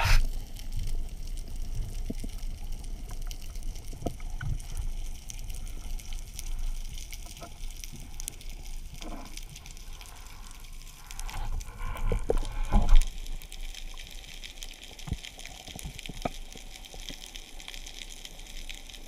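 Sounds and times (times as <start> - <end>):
low underwater rumble: 0.0 - 15.2
small clicks and crackles: 0.0 - 19.0.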